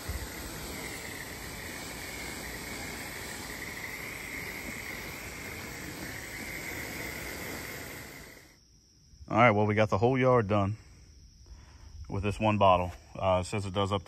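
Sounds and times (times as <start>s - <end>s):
hissing water spray: 0.0s - 8.6s.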